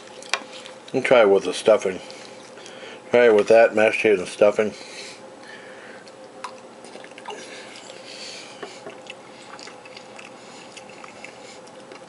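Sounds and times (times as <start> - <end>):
person chewing food: 5.9 - 12.0.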